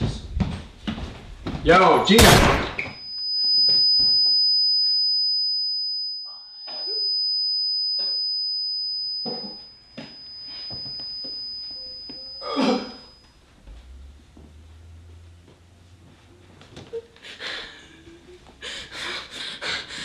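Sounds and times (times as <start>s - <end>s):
high-pitched ringing tone: 2.8s - 16.4s
cough-like burst: 6.7s - 7.1s, 12.4s - 13.1s.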